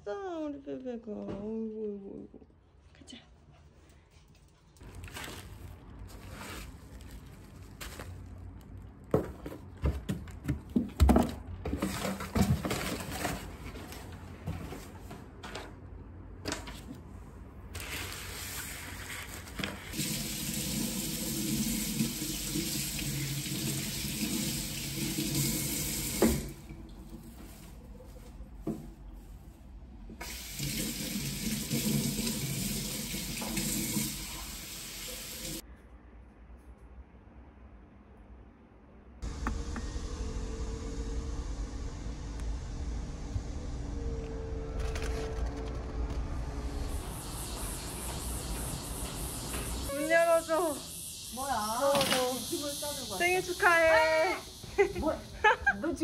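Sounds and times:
tap running into sink: 0:31.7 - 0:34.1.

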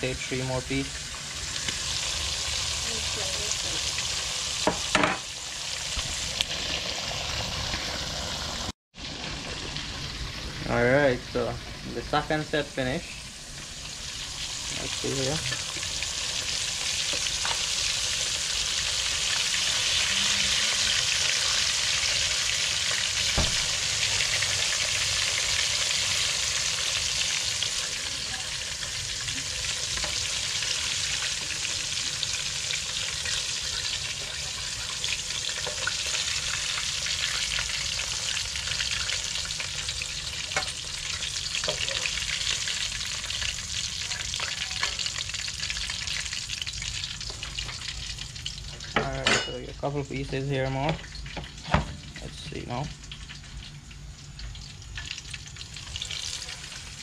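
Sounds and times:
fish sizzling in hot oil: 0:00.0 - 0:57.0.

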